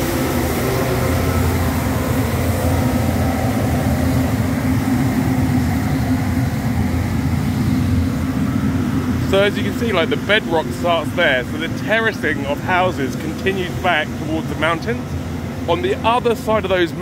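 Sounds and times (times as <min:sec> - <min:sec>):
street sweeper engine hum: 0:00.0 - 0:17.0.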